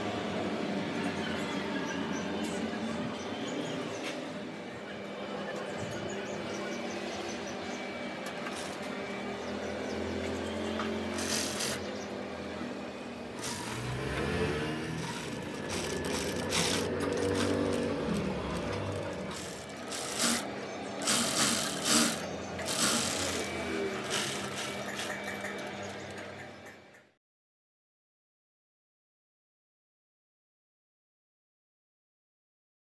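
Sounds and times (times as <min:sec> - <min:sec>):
sewing machine running: 0:11.0 - 0:11.9, 0:13.3 - 0:26.9.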